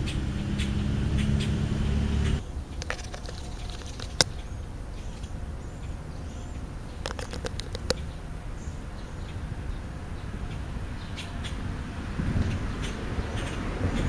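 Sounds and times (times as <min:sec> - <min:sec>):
low outdoor rumble: 0:00.0 - 0:14.0
crow pecking taps: 0:02.8 - 0:04.5, 0:07.0 - 0:08.1.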